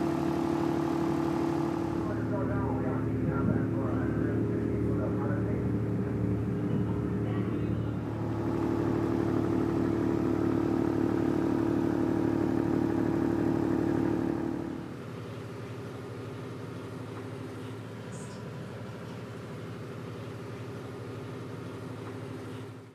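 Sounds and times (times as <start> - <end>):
engine room machinery drone: 0.0 - 22.9.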